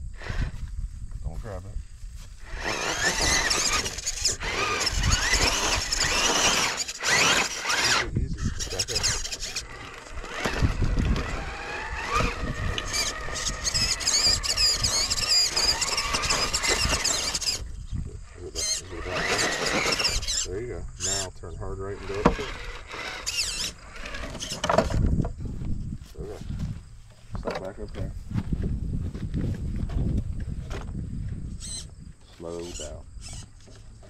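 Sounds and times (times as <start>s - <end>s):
high-pitched electric motor whine: 0.0s - 0.7s, 2.2s - 25.7s, 31.5s - 32.0s, 32.6s - 34.0s.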